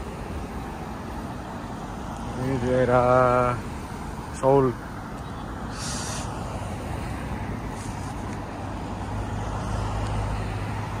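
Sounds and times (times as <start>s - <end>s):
road traffic rushing by: 0.0s - 11.0s.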